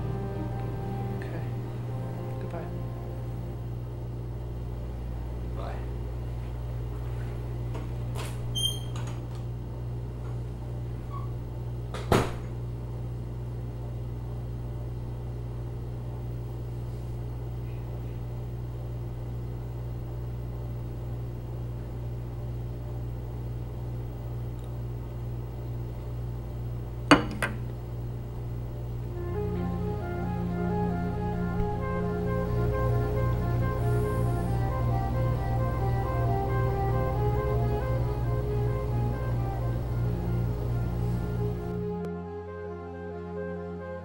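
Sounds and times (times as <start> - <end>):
music: 0.0 - 4.2, 29.0 - 44.0
low room hum: 0.0 - 44.0
door shutting knock: 12.0 - 12.5.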